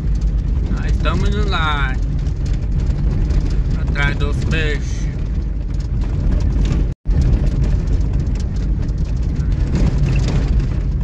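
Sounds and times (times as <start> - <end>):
vehicle engine and road rumble: 0.0 - 11.0.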